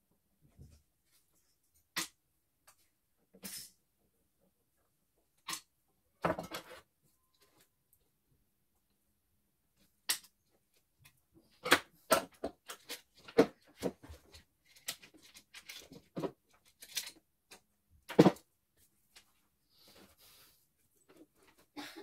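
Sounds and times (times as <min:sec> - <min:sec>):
plastic and metal parts handled: 0:11.6 - 0:18.4.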